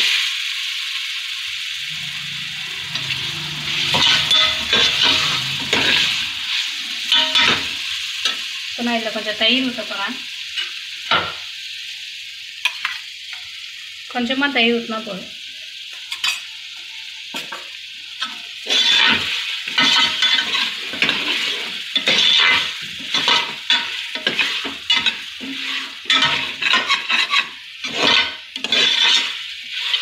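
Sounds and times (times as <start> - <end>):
food sizzling: 0.0 - 30.0
spoon scraping metal pot: 1.9 - 7.7, 18.6 - 30.0.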